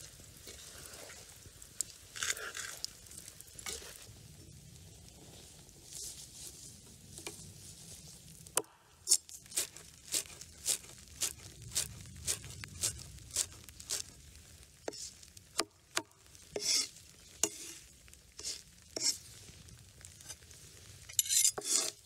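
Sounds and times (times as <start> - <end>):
soft rustle: 0.0 - 15.5, 16.3 - 22.0
knife scraping board: 16.6 - 17.8, 18.4 - 19.2, 21.2 - 22.0.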